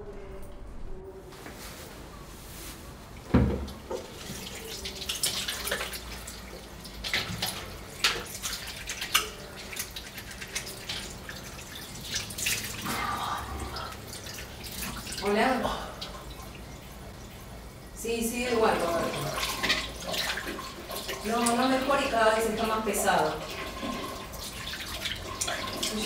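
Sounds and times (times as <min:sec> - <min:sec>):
tap water running into sink: 0:03.3 - 0:13.0, 0:18.5 - 0:26.0
water splashes and drips: 0:03.3 - 0:26.0.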